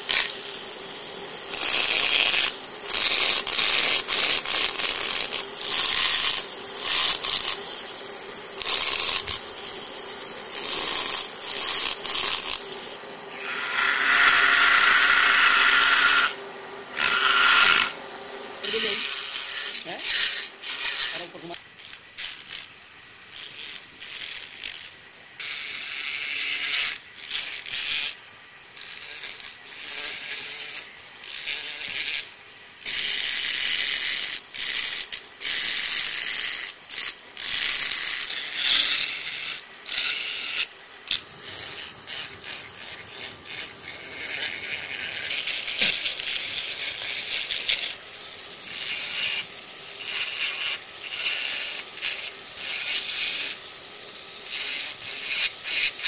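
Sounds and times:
carving tool scraping wood: 0.0s - 18.0s, 18.6s - 56.0s.

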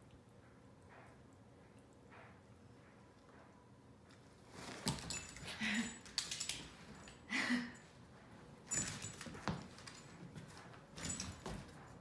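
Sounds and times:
dog paws clicking on wooden floor: 4.1s - 7.2s, 8.2s - 12.0s
collar tag jingling: 4.8s - 12.0s.

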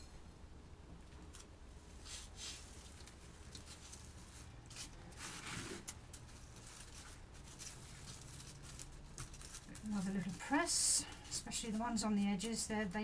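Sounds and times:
compost scattered over a plastic tray: 1.3s - 13.0s.

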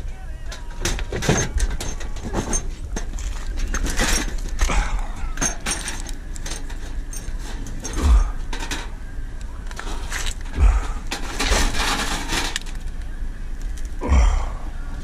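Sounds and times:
wire-mesh trap rattling: 0.7s - 8.9s, 9.8s - 13.0s.

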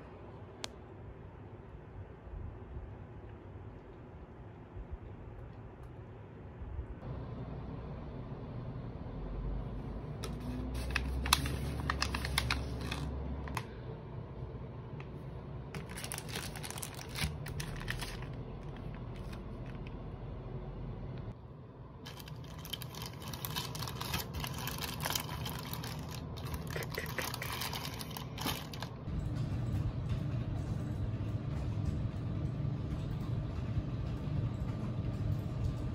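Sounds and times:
steady low hum: 0.0s - 35.9s
plastic packaging crinkling: 10.2s - 13.1s, 15.8s - 19.9s, 22.1s - 29.1s.

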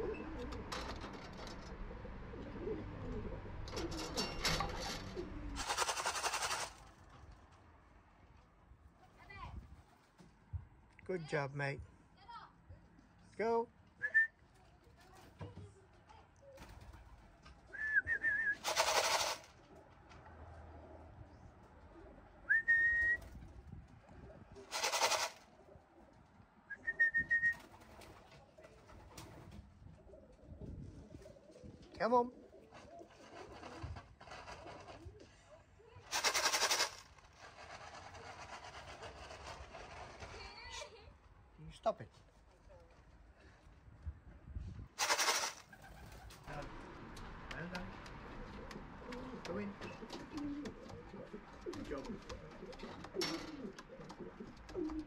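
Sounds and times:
pigeons cooing: 0.0s - 7.2s, 16.5s - 40.0s, 45.0s - 55.0s
rapid rustling: 5.6s - 7.1s, 18.6s - 19.5s, 24.7s - 25.4s, 32.6s - 35.3s, 36.1s - 40.8s, 45.0s - 46.5s
person whistling: 17.8s - 18.6s, 22.5s - 23.2s, 26.7s - 27.6s
short loud bursts of noise: 18.6s - 19.5s, 36.1s - 37.1s, 45.0s - 45.7s.

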